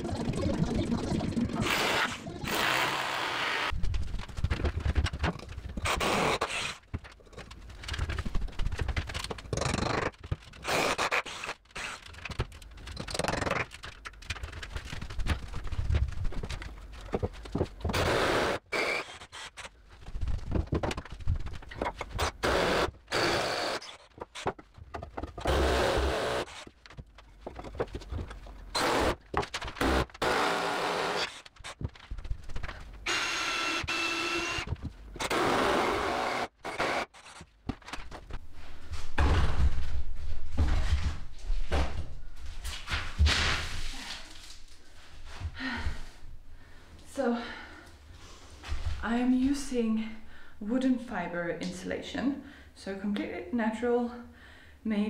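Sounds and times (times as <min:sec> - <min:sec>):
scraping and knocking on timber: 0:14.1 - 0:18.0, 0:20.1 - 0:22.2, 0:24.1 - 0:25.6, 0:26.6 - 0:30.0.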